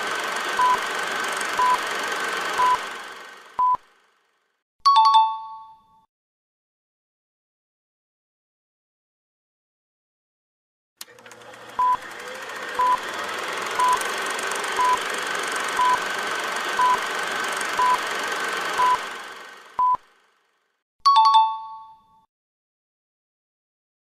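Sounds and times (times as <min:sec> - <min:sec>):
hissing drone: 0:00.0 - 0:03.6, 0:12.0 - 0:19.8
timer beeps: 0:00.6 - 0:00.8, 0:01.6 - 0:01.8, 0:02.6 - 0:02.8, 0:03.6 - 0:03.8, 0:14.8 - 0:15.0, 0:15.8 - 0:16.0, 0:16.8 - 0:17.0, 0:17.8 - 0:18.0, 0:18.8 - 0:19.0, 0:19.8 - 0:20.0.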